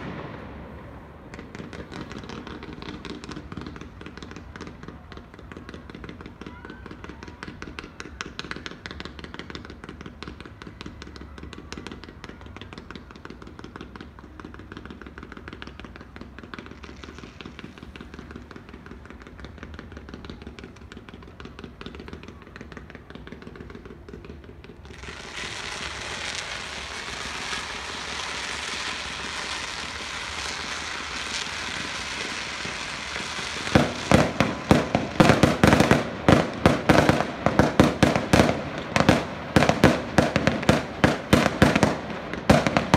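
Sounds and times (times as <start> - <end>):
fireworks crackling: 0.0 - 42.9
fireworks shells bursting: 25.0 - 42.9.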